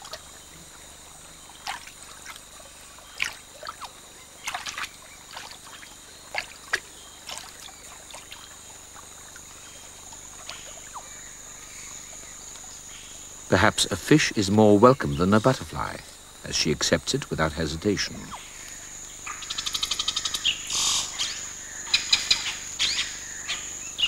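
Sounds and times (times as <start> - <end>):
splashes of shallow water: 0.0 - 11.1
high insect drone: 0.0 - 24.0.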